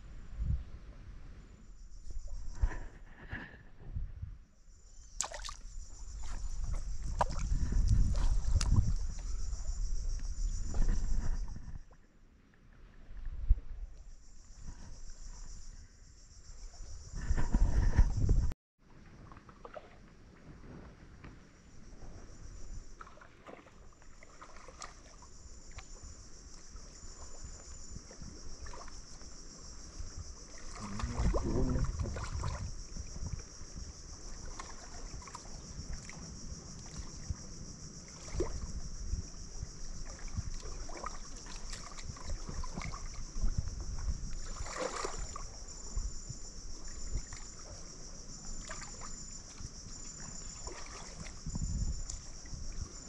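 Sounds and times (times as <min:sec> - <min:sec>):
insects chirping: 0:00.0 - 0:18.5, 0:19.2 - 0:53.0
splashing in shallow water: 0:04.9 - 0:15.8, 0:18.9 - 0:53.0
sharp splash: 0:05.2 - 0:09.1, 0:23.0 - 0:25.8, 0:44.4 - 0:45.5, 0:50.6 - 0:51.4.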